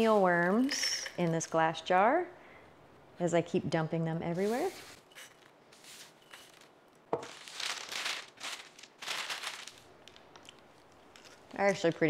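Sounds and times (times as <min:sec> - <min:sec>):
parchment paper crinkling: 0:05.8 - 0:12.0.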